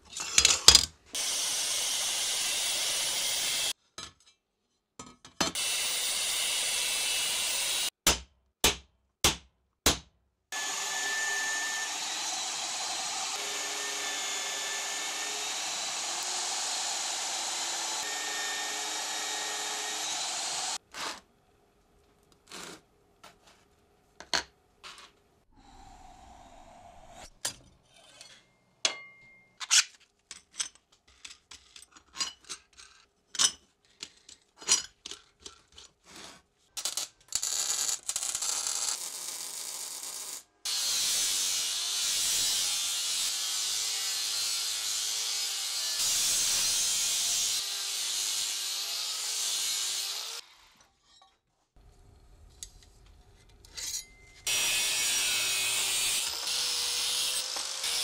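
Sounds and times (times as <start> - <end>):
power drill running: 1.2 - 3.7, 5.6 - 7.9, 10.6 - 20.8
hammer striking steel punch: 8.0 - 10.1.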